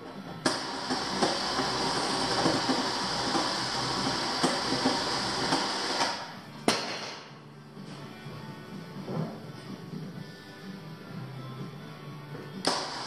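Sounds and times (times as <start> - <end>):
electric winch motor running: 0.4 - 6.3, 12.7 - 13.0.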